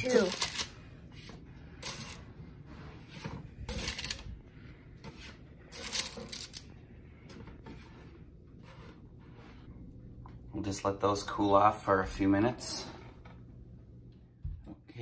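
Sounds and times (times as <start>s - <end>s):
spatula scraping metal baking sheet: 0.0s - 6.7s, 7.5s - 9.7s.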